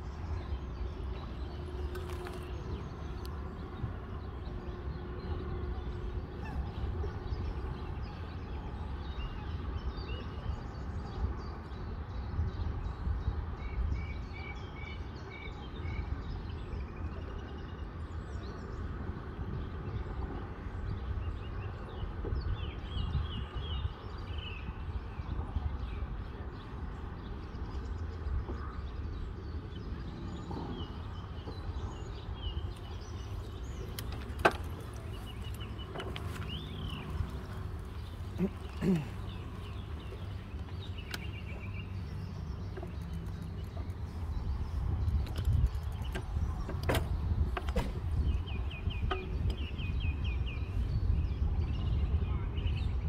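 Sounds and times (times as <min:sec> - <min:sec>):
low river rumble: 0:15.6 - 0:53.0.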